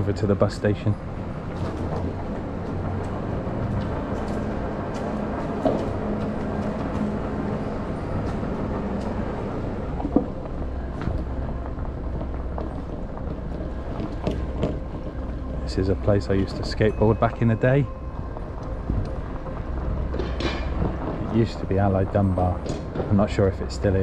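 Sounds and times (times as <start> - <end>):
electric scooter drive hum: 0.0 - 24.0.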